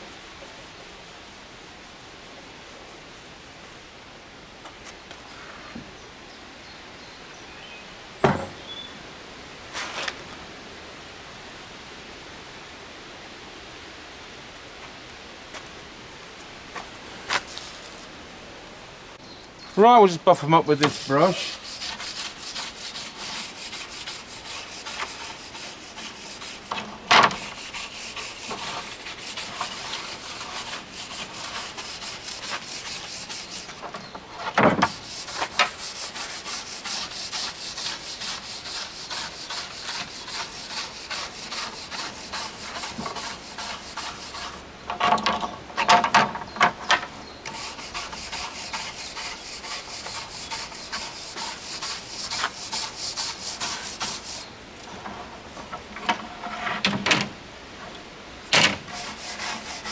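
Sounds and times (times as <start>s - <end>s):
brush scrubbing wood: 0.0s - 4.0s, 19.8s - 44.6s, 47.5s - 56.6s, 58.8s - 59.9s.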